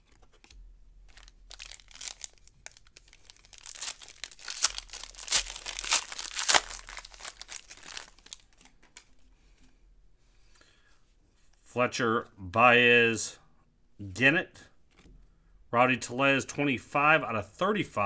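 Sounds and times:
foil wrapper crinkling: 1.1s - 9.1s.

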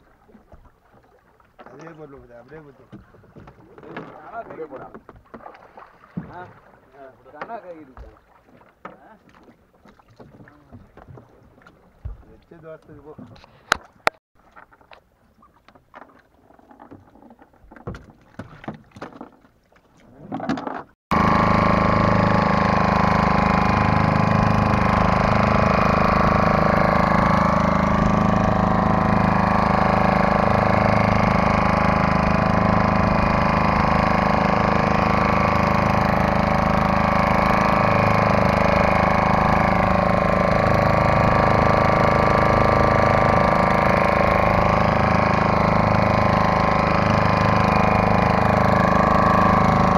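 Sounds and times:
outboard motor running: 0.0s - 49.9s.

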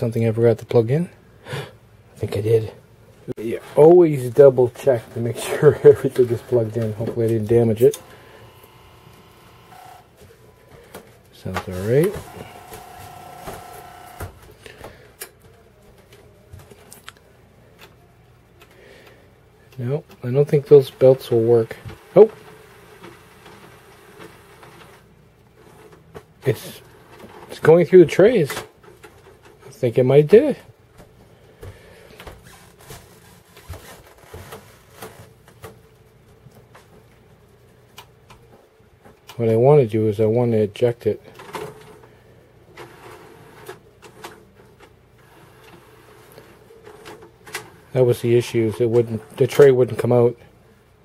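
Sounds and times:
cd changer mechanism whine: 7.7s - 10.7s, 11.6s - 14.4s.

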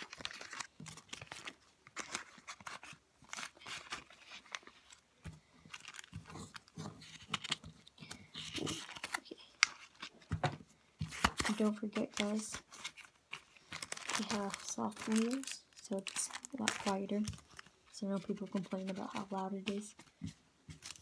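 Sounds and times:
plastic bag crinkling: 0.0s - 5.0s, 5.6s - 10.2s, 11.1s - 20.2s
small items clicking: 11.4s - 20.1s.

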